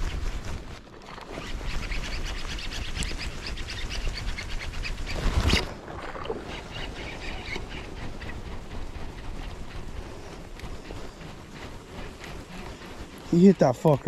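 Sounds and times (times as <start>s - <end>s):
rustling: 0.0s - 14.0s.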